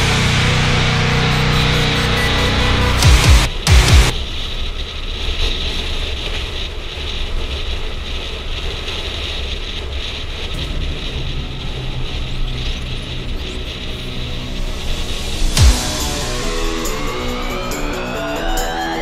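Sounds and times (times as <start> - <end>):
motorcycle engine running: 0.0 - 4.1
wind rushing over microphone: 3.5 - 15.6.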